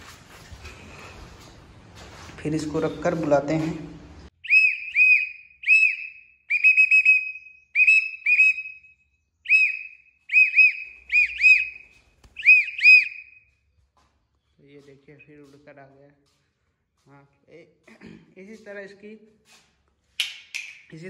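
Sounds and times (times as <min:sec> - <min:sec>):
person whistling short notes: 0:04.4 - 0:08.7, 0:09.5 - 0:11.8, 0:12.4 - 0:13.3.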